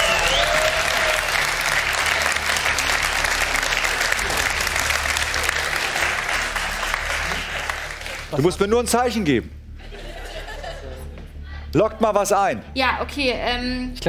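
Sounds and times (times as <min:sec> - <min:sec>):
audience applauding: 0:00.0 - 0:08.6.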